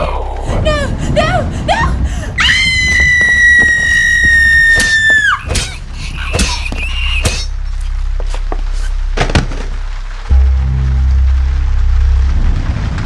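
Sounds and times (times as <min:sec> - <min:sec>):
knocks and thuds: 0:09.2 - 0:09.8.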